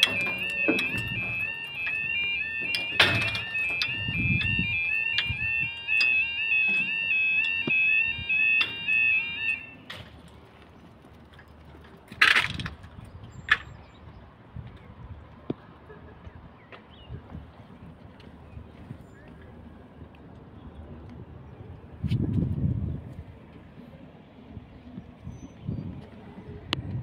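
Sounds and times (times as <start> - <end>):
level crossing alarm warbling: 0.0 - 9.8.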